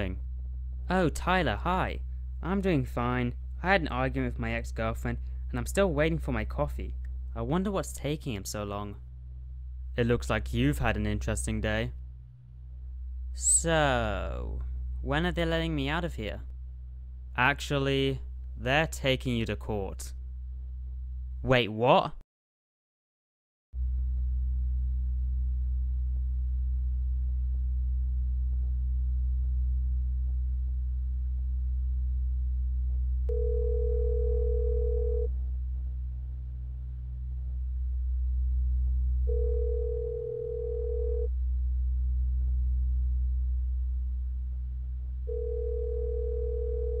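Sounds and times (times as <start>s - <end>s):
pure beep tone: 13.4s - 13.7s
deep electronic drone: 35.3s - 39.4s.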